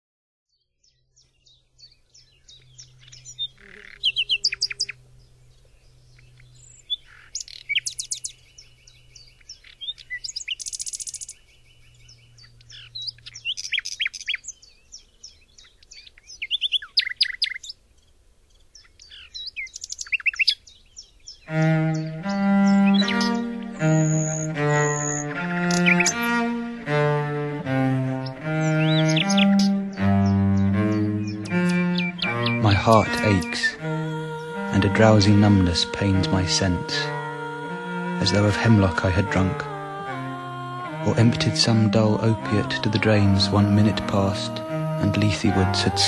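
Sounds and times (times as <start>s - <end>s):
nightingale singing: 0.5s - 27.0s, 27.6s - 46.0s
cello playing: 21.5s - 46.0s.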